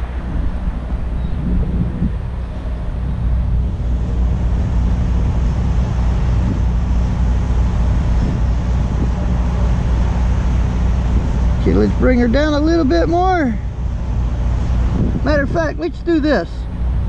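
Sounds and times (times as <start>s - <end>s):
idling vehicle engines: 0.0s - 17.0s
wind noise on microphone: 0.0s - 17.0s.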